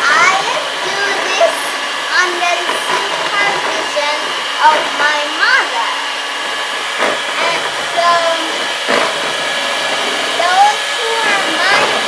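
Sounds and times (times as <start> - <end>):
girl speaking: 0.0 - 6.1, 7.4 - 8.6, 10.4 - 12.0
electric hand mixer running: 0.0 - 12.0.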